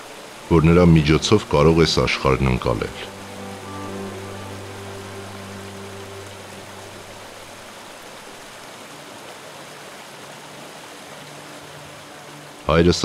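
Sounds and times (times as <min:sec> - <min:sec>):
low held music notes: 0:00.0 - 0:08.6
stream rushing over rocks: 0:00.0 - 0:13.0.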